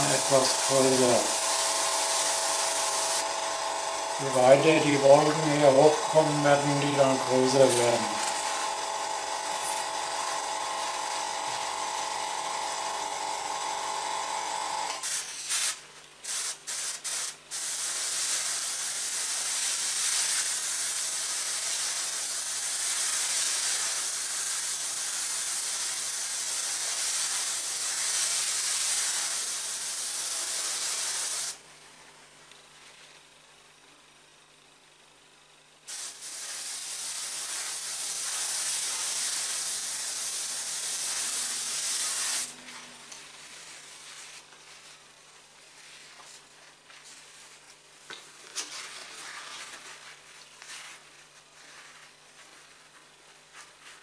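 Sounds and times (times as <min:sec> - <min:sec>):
airbrush air hiss: 0:00.0 - 0:03.4, 0:04.2 - 0:12.2, 0:15.0 - 0:31.6, 0:35.9 - 0:45.0
airbrush hum: 0:00.0 - 0:31.6, 0:35.9 - 0:47.5.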